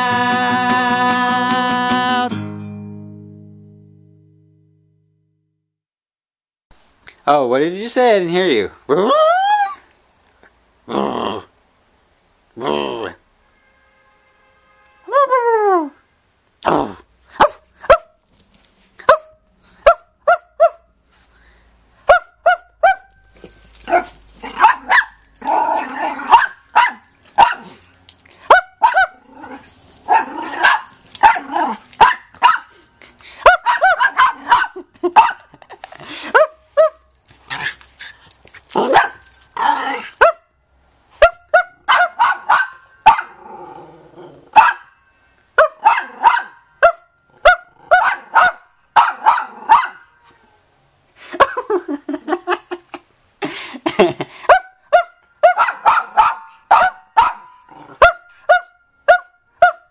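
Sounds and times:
small dog yapping: 22.1s - 23.2s, 23.8s - 27.9s, 28.5s - 32.7s, 33.4s - 35.4s, 38.8s - 40.4s, 41.2s - 43.4s, 44.5s - 44.9s, 45.6s - 50.5s, 54.5s - 59.8s.

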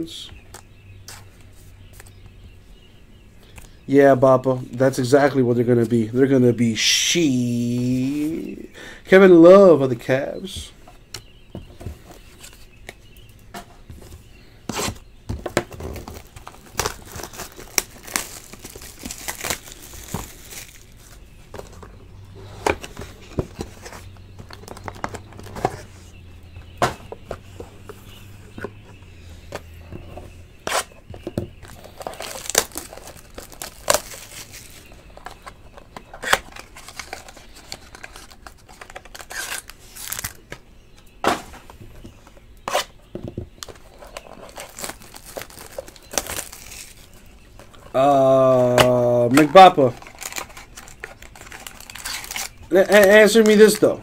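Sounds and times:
plastic crinkling and rustling: 15.7s - 21.9s, 31.2s - 40.5s, 43.6s - 48.0s, 49.3s - 53.9s.

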